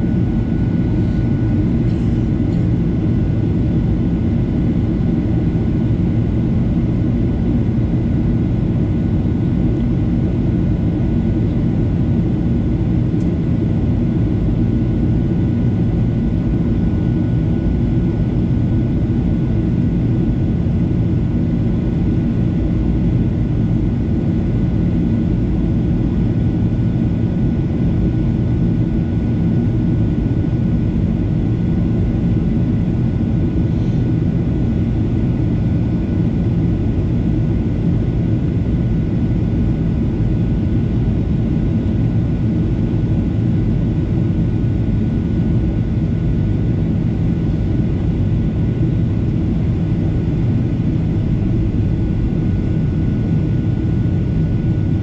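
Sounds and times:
jet engine roar and airflow: 0:00.0 - 0:55.0.

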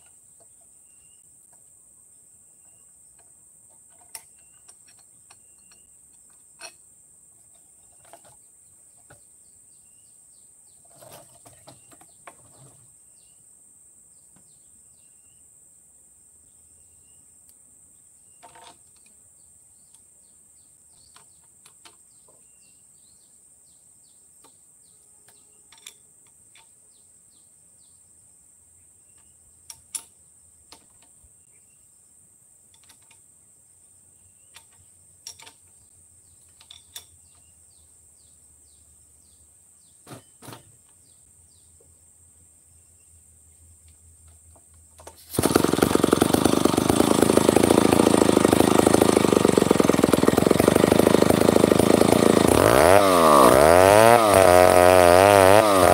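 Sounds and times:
short insect chirp: 0:00.8 - 0:03.3, 0:03.9 - 0:07.0, 0:13.1 - 0:40.0.

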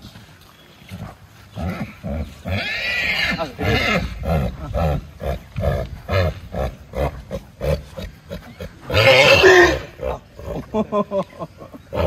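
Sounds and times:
horses nickering: 0:00.9 - 0:12.0
horse squealing: 0:01.7 - 0:10.1.

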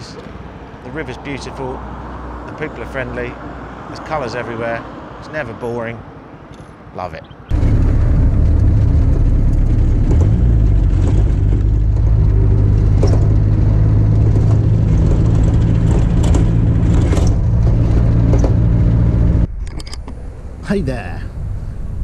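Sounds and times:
knocks and rattles: 0:07.5 - 0:19.9
car engine drone from cabin: 0:07.5 - 0:22.0.

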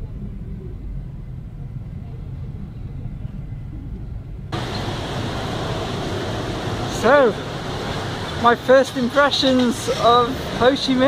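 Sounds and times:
passing street traffic hiss: 0:04.5 - 0:11.0.

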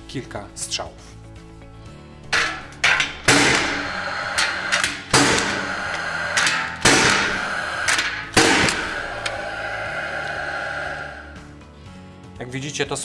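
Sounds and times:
nailer shots cracking: 0:02.4 - 0:05.7, 0:06.4 - 0:08.9.

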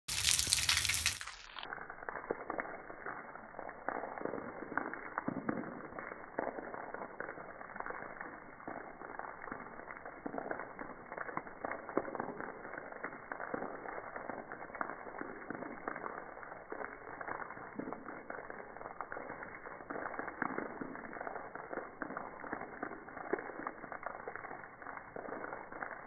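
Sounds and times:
slowed water splashes on concrete: 0:00.0 - 0:26.0.

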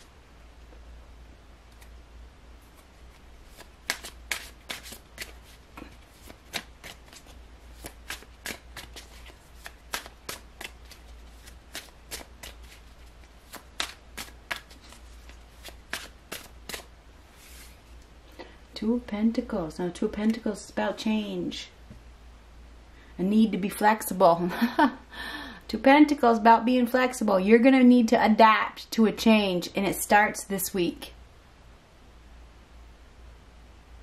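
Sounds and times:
steady low hum: 0:00.0 - 0:26.4
cards being shuffled: 0:02.6 - 0:18.0.

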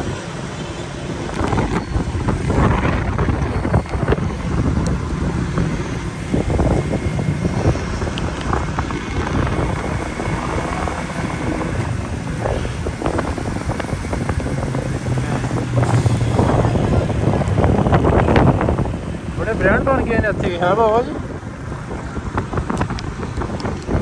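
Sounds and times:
moving vehicle rumble: 0:00.0 - 0:24.0
wind over microphone: 0:00.0 - 0:24.0.

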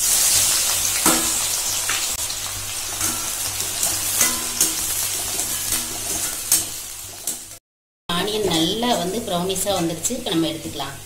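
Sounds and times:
onions sizzling in hot oil: 0:00.0 - 0:07.6
spoon scraping a pan: 0:02.9 - 0:07.6.

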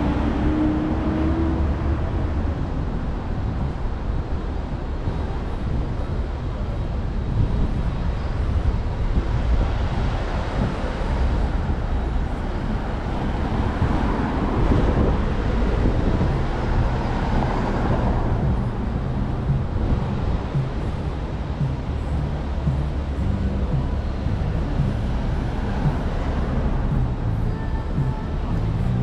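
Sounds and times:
vehicle passing: 0:00.0 - 0:04.2
city street traffic rumble: 0:00.0 - 0:29.0.

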